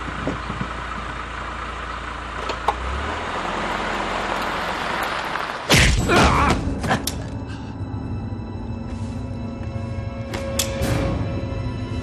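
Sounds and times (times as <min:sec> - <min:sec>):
car engine running and moving off: 0:00.0 - 0:06.1.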